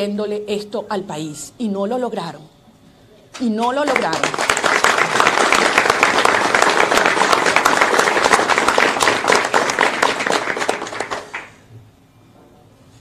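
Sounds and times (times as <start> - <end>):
crowd applauding: 3.9 - 11.6.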